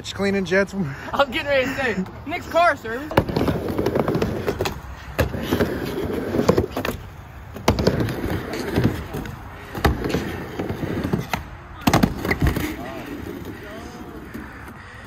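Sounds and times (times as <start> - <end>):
skateboard wheels rumbling: 2.0 - 15.0
skateboards clacking on ramp: 3.0 - 14.8.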